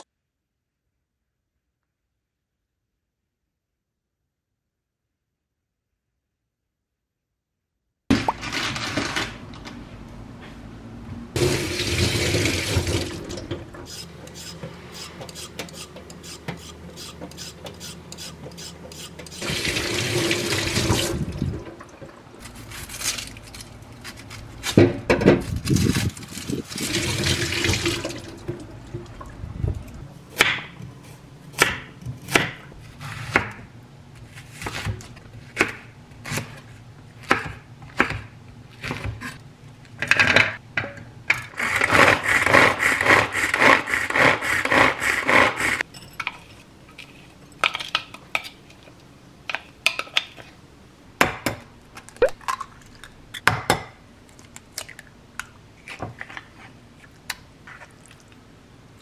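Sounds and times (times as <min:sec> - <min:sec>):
wind noise: 0:21.0 - 0:21.7, 0:25.4 - 0:27.0, 0:29.4 - 0:30.1.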